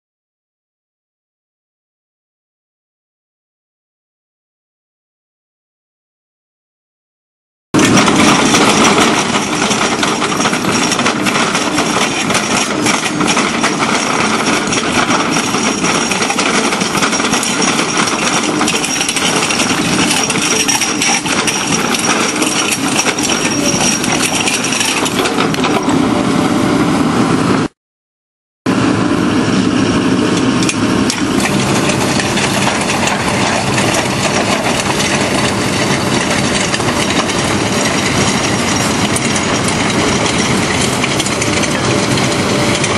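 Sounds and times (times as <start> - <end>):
clatter of small impacts: 7.8 - 25.9
drum cutter grinding into rock: 7.8 - 26.0, 30.4 - 42.9.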